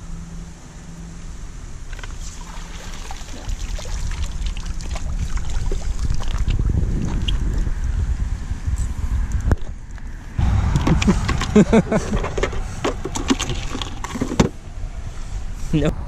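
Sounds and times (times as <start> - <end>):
net splashing through water: 2.1 - 7.3
water dripping from net: 2.3 - 6.6
wind on microphone: 3.3 - 16.0.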